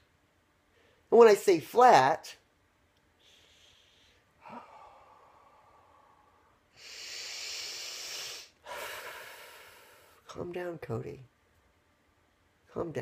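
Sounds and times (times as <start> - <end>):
man breathing deeply: 3.2 - 10.2.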